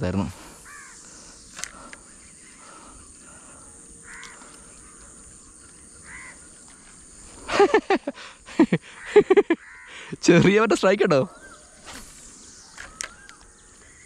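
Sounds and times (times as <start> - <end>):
insect hiss: 0.0 - 14.0
distant crow cawing: 0.6 - 7.3, 8.8 - 10.2.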